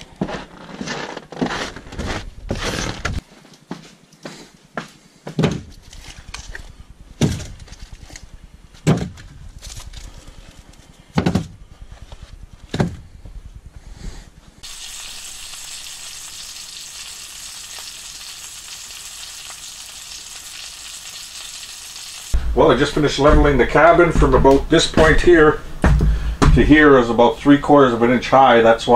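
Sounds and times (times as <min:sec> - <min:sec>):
steady hiss: 0:14.6 - 0:28.6.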